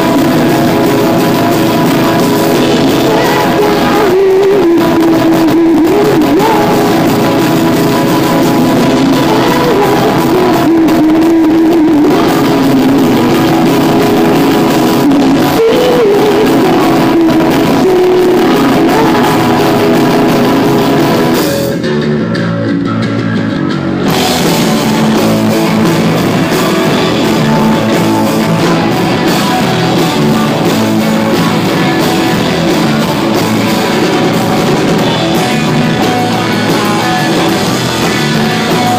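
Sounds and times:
bass guitar: 0:00.0 - 0:38.9
drum kit: 0:00.0 - 0:38.9
electric guitar: 0:00.0 - 0:38.9
woman singing: 0:02.8 - 0:07.3, 0:08.8 - 0:13.7, 0:14.9 - 0:21.1.

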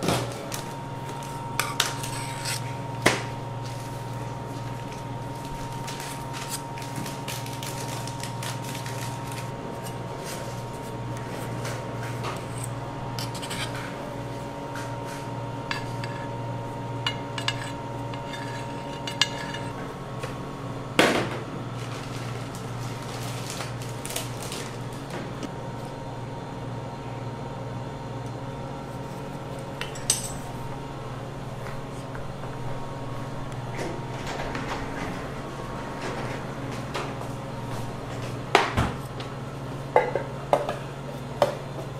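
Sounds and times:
palette knife scraping metal: 0:01.6 - 0:02.8, 0:12.4 - 0:13.9, 0:17.2 - 0:19.8.

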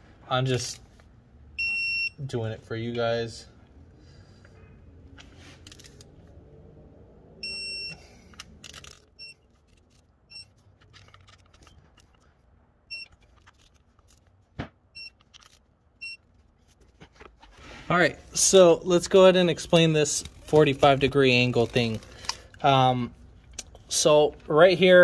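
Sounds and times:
torque wrench beeping: 0:07.4 - 0:08.0, 0:10.3 - 0:10.6, 0:12.9 - 0:13.2, 0:14.9 - 0:15.3.

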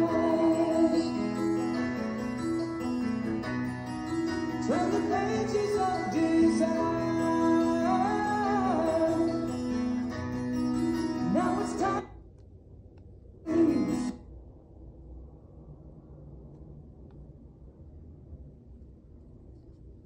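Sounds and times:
song with singing and guitar: 0:00.0 - 0:12.2, 0:13.5 - 0:14.2.

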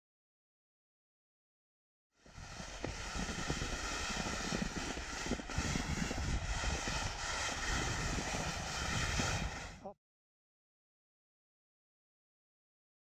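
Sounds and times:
skis hissing over snow: 0:02.2 - 0:09.9
wind buffeting microphone: 0:02.3 - 0:09.8.

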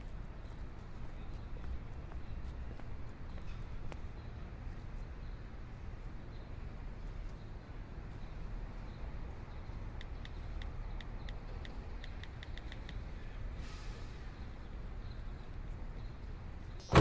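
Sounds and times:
distant traffic: 0:00.0 - 0:17.0
wind: 0:00.0 - 0:17.0
brief rushing hiss: 0:13.6 - 0:14.2.

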